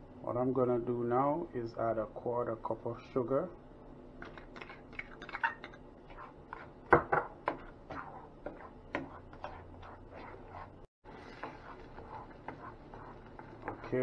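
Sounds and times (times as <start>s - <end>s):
spoon scraping a pan: 4.3s - 14.0s.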